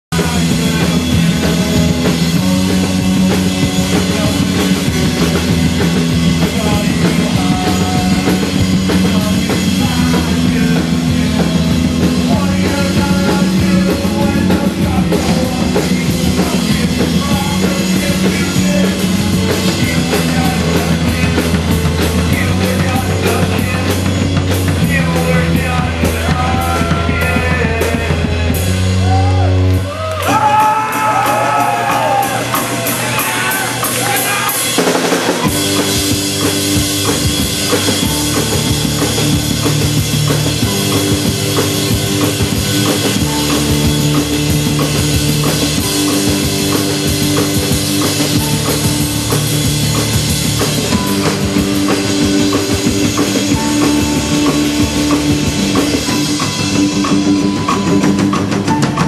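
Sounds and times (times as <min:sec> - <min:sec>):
pounding drum kit: 0:00.1 - 0:59.0
punk rock band playing: 0:00.1 - 0:59.0
sustained bass notes: 0:00.1 - 0:59.0
shouted vocals: 0:25.4 - 0:35.6.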